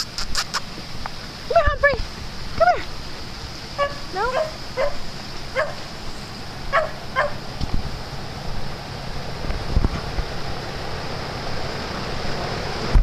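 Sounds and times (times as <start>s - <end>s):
dog yipping and barking: 3.8s - 5.9s, 6.7s - 7.4s.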